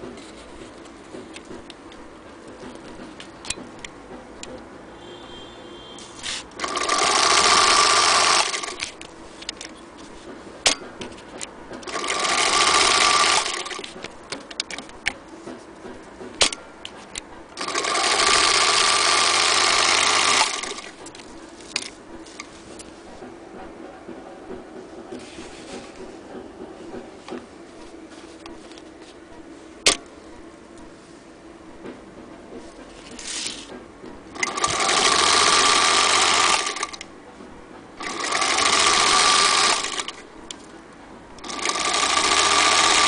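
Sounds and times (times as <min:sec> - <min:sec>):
handling clicks and knocks: 0:00.0 - 0:04.7, 0:08.5 - 0:12.2, 0:13.2 - 0:17.7
sewing machine whirring: 0:06.0 - 0:23.3, 0:33.0 - 0:37.2, 0:38.0 - 0:40.7, 0:41.3 - 0:43.0.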